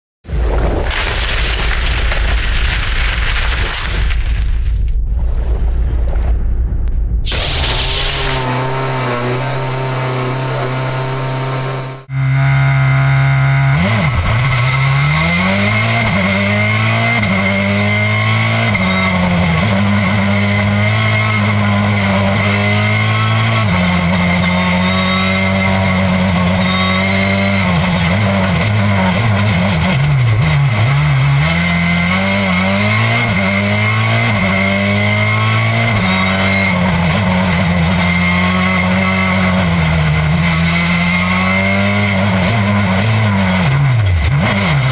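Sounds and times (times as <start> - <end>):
rally car engine revving: 7.3 - 44.9.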